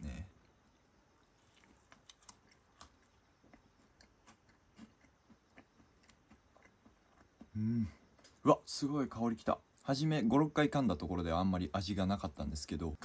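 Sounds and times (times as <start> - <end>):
person humming: 7.5 - 8.0.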